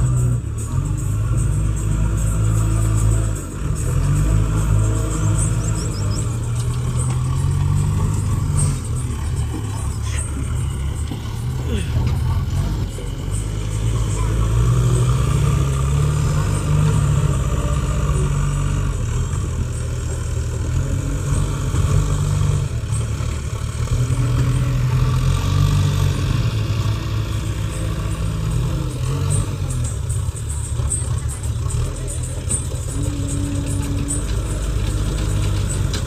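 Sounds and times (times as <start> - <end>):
diesel engines rumbling under load: 0.0 - 36.0.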